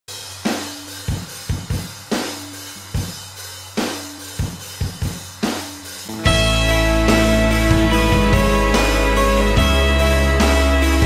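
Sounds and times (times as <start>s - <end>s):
rock drum beat: 0.1s - 11.0s
rock band with guitar: 4.3s - 11.0s.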